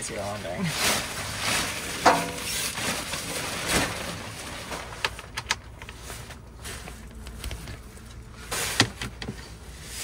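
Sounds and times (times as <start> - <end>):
shower curtain rustling: 0.6 - 5.0.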